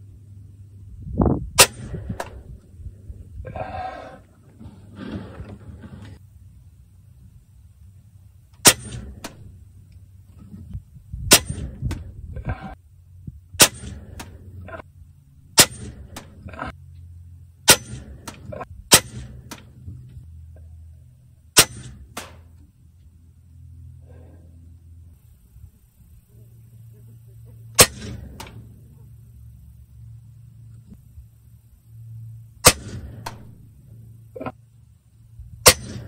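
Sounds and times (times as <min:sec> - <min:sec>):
air rifle shot cracks: 0:01.6 - 0:02.4, 0:27.8 - 0:28.6.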